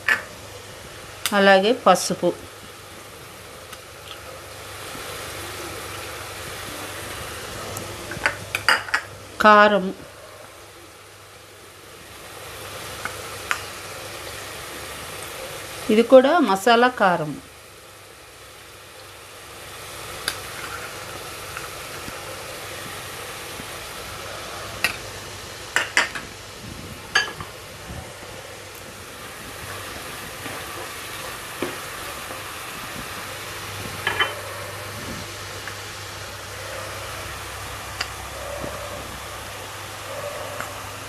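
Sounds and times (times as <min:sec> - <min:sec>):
paste sizzling in hot oil: 0:11.4 - 0:27.8.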